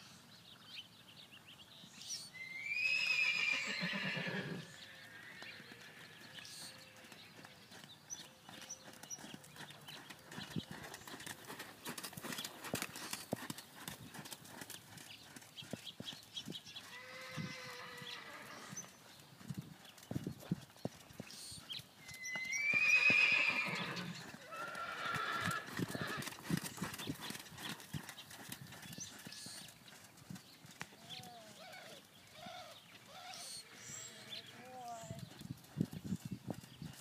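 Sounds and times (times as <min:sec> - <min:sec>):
horse whinnying: 0:02.4 - 0:06.1, 0:16.9 - 0:18.8, 0:22.1 - 0:26.4
horse hoofbeats on sand: 0:07.0 - 0:17.3, 0:18.7 - 0:22.6, 0:24.0 - 0:31.9.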